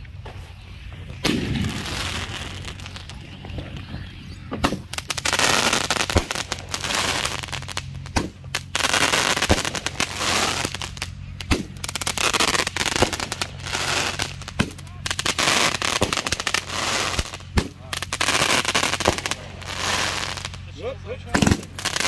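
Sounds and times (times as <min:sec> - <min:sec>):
firework bangs: 0:00.0 - 0:22.0
firework hiss and crackle: 0:00.0 - 0:22.0.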